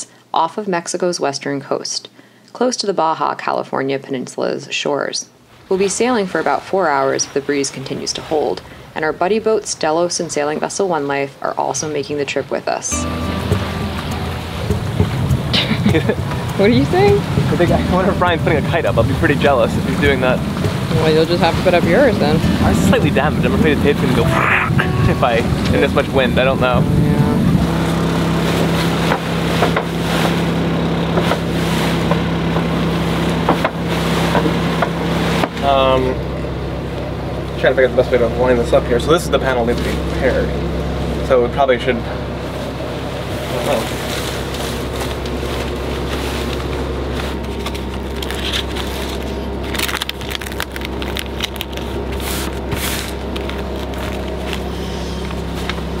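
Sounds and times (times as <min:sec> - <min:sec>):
steady low drone: 0:12.9 - 0:35.1
low machine hum: 0:12.9 - 0:56.0
nylon cloth crinkling and rustling: 0:43.5 - 0:56.0.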